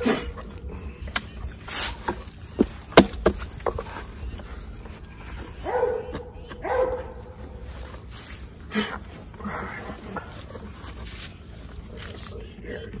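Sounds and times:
dog whining: 5.4s - 7.6s.

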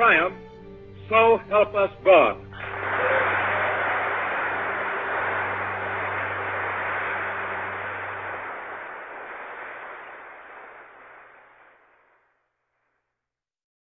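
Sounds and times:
radio hiss and crackle: 2.6s - 12.6s.

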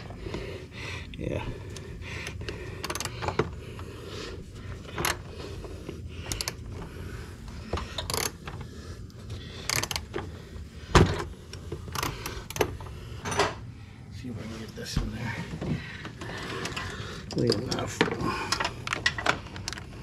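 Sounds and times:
metal tools clinking on engine parts: 16.6s - 19.8s.

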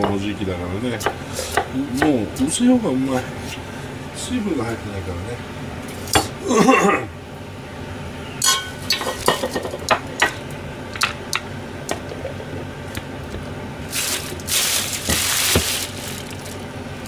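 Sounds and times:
steady hissing noise: 7.1s - 17.0s.

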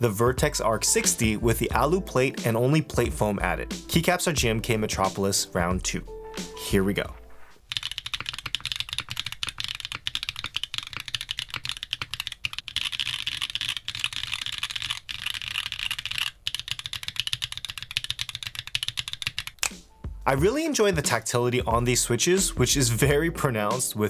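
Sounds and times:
mechanical keyboard typing: 7.7s - 19.7s.

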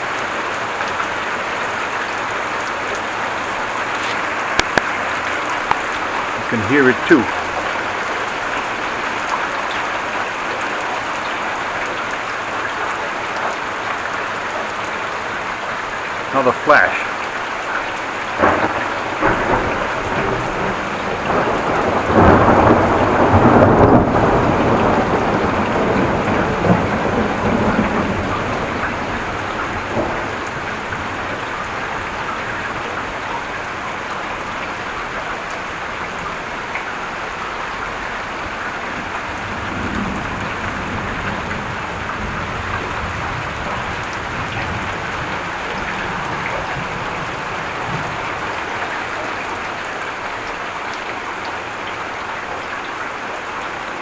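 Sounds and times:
heavy rain pouring: 0.0s - 54.0s
thunder rumbling: 18.4s - 33.3s.

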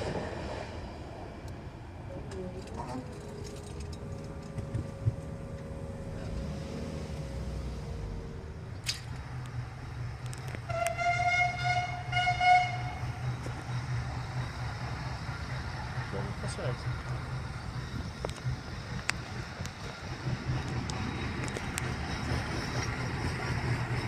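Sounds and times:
steady humming tones: 1.5s - 10.3s
steam whistle blast: 10.7s - 13.0s.

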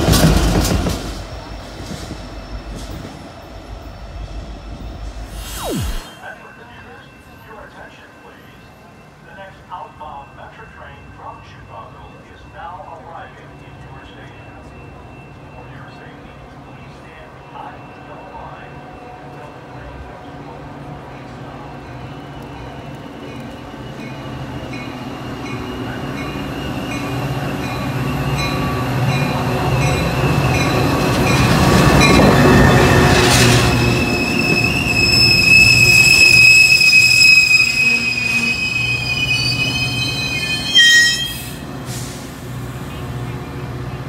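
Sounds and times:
train locomotive passing: 0.0s - 44.0s
high wheel squeal: 32.1s - 42.1s.

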